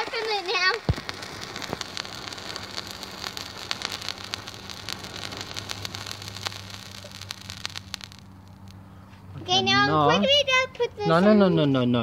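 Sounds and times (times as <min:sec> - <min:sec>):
crackles and pops: 0:00.0 - 0:08.9
flame hissing: 0:00.0 - 0:09.3.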